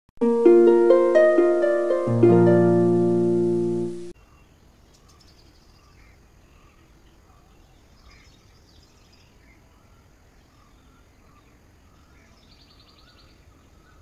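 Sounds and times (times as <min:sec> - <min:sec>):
plucked harp jingle: 0:00.2 - 0:04.1.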